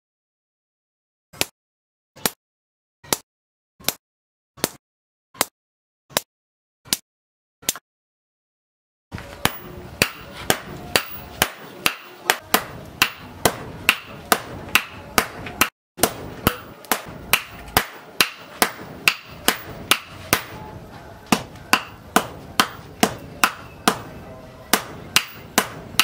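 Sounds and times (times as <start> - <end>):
hammers striking metal on anvil: 9.4 - 26.0.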